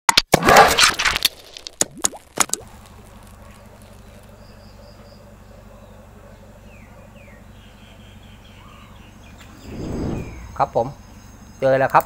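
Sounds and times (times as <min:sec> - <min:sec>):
low electrical hum: 0:02.6 - 0:12.0.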